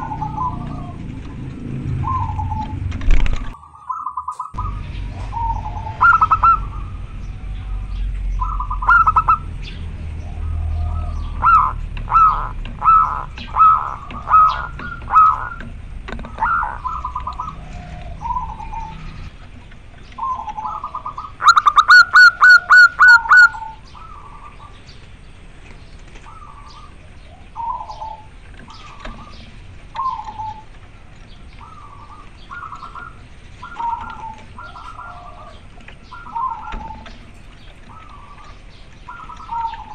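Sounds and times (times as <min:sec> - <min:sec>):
low rumble: 0:00.0 - 0:21.4
dove cooing: 0:00.0 - 0:24.9, 0:26.2 - 0:39.9.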